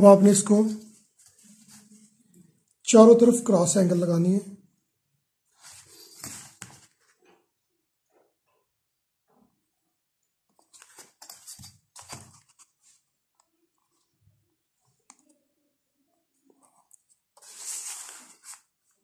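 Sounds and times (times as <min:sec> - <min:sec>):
notebook rustling on desk: 0:05.6 - 0:07.4, 0:10.6 - 0:13.1, 0:16.5 - 0:19.0.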